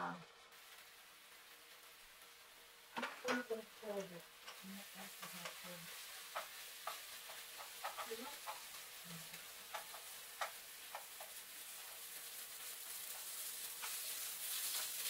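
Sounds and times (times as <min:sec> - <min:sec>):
pork sizzling in a wok: 0:00.0 - 0:15.0
wooden spoon scraping a pan: 0:03.0 - 0:15.0.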